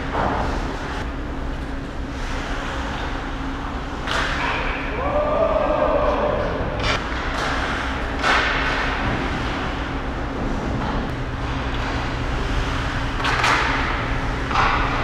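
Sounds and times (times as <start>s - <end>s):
steady low hum: 0.0s - 15.0s
hockey stick or puck clicks: 13.2s - 13.8s.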